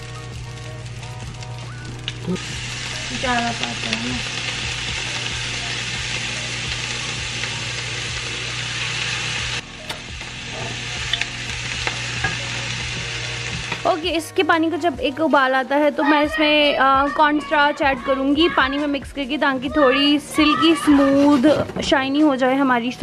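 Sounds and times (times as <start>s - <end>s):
sauce sizzling in pan: 0.0s - 19.0s
wooden spatulas scraping: 20.6s - 22.0s.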